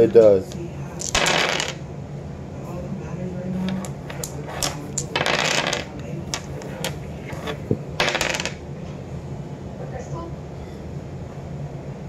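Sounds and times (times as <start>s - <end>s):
playing cards shuffling: 3.6s - 8.5s.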